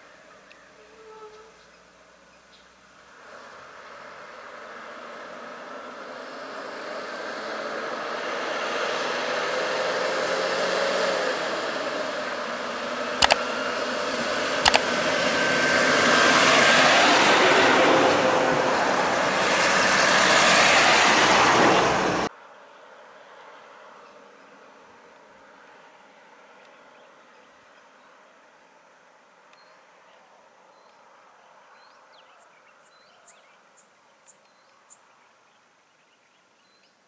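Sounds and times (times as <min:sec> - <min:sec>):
bus engines running: 0:03.2 - 0:22.3
sharp clicks: 0:13.2 - 0:13.4, 0:14.6 - 0:14.9.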